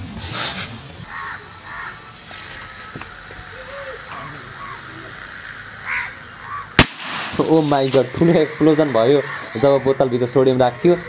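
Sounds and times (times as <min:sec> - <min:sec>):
plastic bottle bursting bang: 0:06.8 - 0:07.9.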